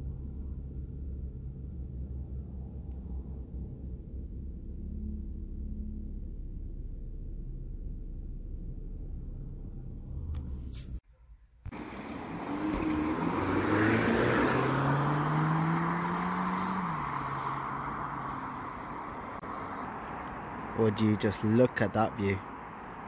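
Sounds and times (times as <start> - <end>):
car engine idling: 0.0 - 10.9
car driving past: 11.7 - 20.0.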